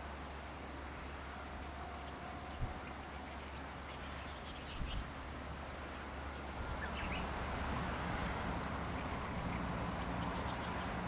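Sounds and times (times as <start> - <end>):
small birds chirping: 2.0 - 5.2, 6.3 - 7.8, 8.8 - 11.0.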